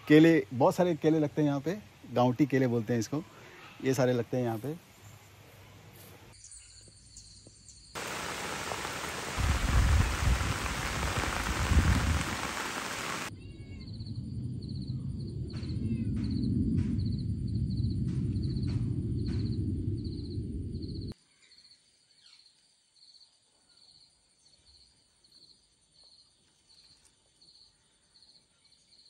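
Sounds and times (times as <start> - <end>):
rain hissing: 8.0 - 13.3
rumbling gusts: 8.0 - 13.3, 13.9 - 21.2
low rumble: 14.0 - 21.2.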